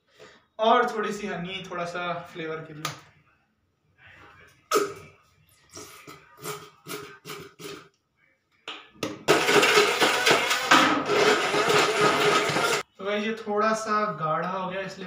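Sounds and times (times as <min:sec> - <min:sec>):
electric hand blender running: 0:09.3 - 0:12.8.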